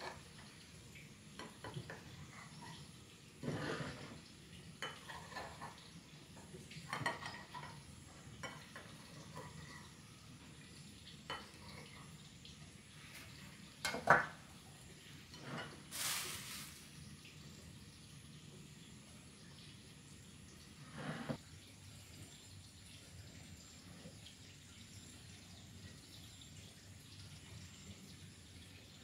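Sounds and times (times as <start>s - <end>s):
pots and utensils clinking: 0.0s - 10.0s, 11.2s - 12.1s, 13.2s - 14.6s, 15.2s - 16.8s
short hiss: 15.9s - 16.9s.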